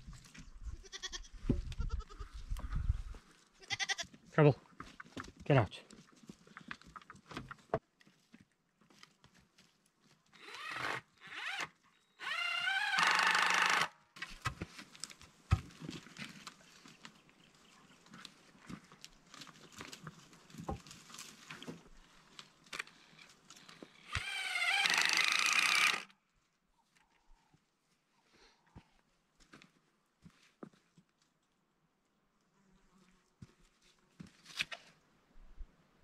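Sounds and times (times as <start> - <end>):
knocks and handling of wood: 4.7 - 9.7, 14.2 - 17.3, 18.1 - 24.3
cordless drill driving screws: 10.4 - 13.9, 24.0 - 26.1.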